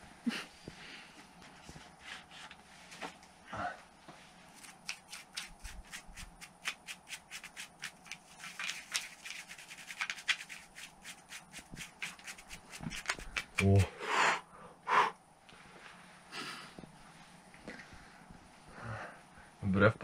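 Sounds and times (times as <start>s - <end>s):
brush scrubbing rock: 4.6s - 13.9s.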